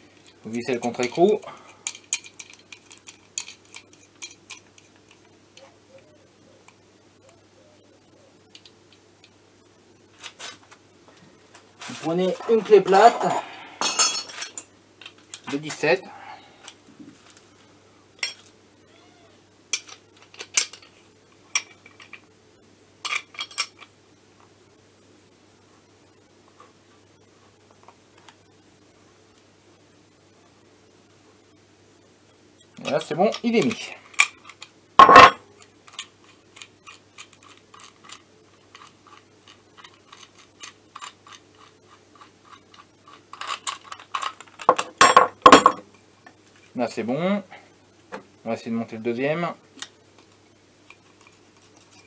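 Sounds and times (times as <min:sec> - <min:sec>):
steel tools clinking: 0:00.2 - 0:05.2, 0:12.4 - 0:14.7.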